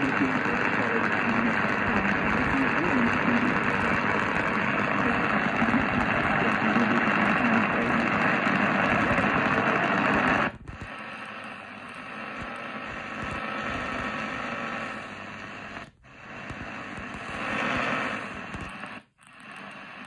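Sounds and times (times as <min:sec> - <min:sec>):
am radio station audio: 0:00.0 - 0:20.0
radio static hiss: 0:00.0 - 0:20.0.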